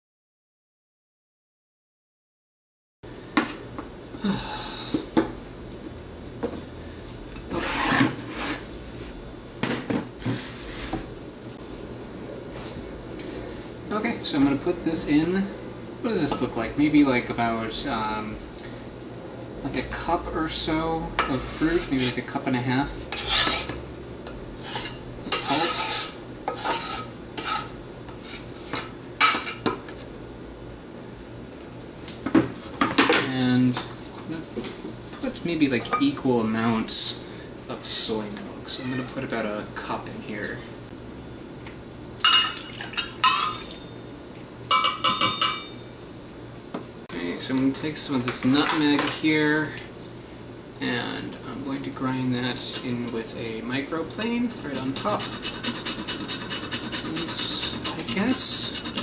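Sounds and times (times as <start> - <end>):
knife on wooden cutting board: 23.1 - 23.8
knife scraping fruit flesh: 23.1 - 23.8, 24.6 - 28.9, 54.5 - 59.0.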